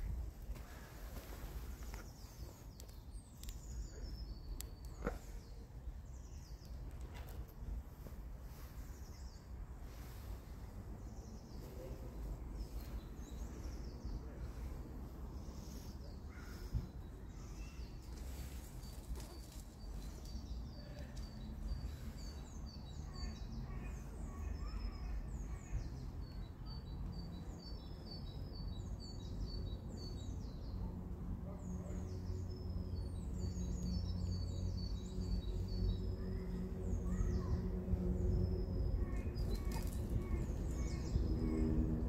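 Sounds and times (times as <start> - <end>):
songbirds chirping: 0.0 - 42.0.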